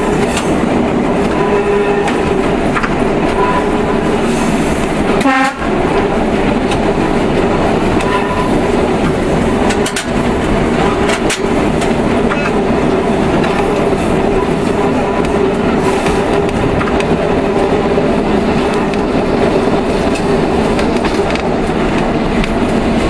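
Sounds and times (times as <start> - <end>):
diesel railcar running: 0.0 - 23.0
wheel clicks over rail joints: 7.9 - 12.6.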